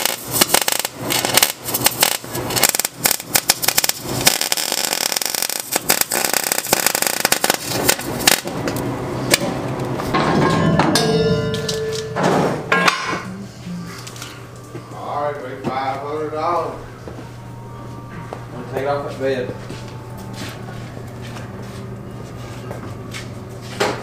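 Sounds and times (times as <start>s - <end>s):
welding arc crackling: 0.0s - 9.9s.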